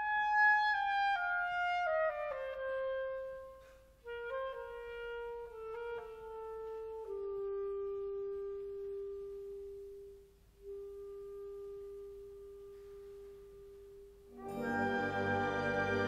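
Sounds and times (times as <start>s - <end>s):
full orchestra with strings: 14.4s - 16.0s.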